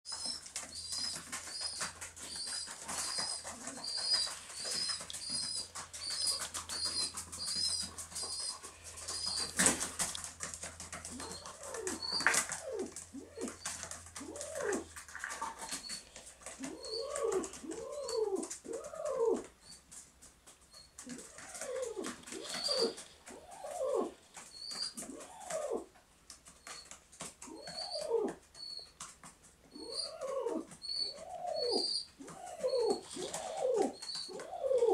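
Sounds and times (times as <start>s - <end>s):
wing flapping: 0.1s - 19.5s
baby pigeon squeaking: 0.1s - 19.8s, 20.7s - 25.9s, 26.5s - 34.9s
pigeon cooing: 0.1s - 19.8s, 20.7s - 29.1s, 29.7s - 34.9s.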